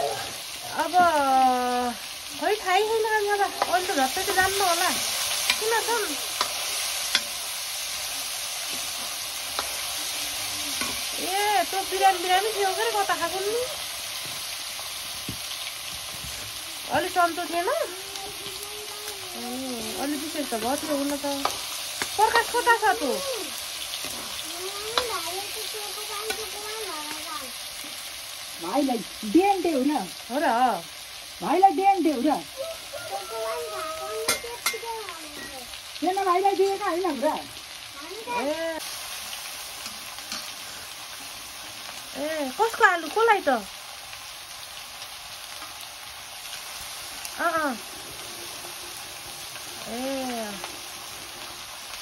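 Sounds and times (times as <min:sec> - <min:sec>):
voice-like calls: 0:00.0 - 0:00.8, 0:32.4 - 0:35.7
potatoes sizzling in oil: 0:00.0 - 0:52.0.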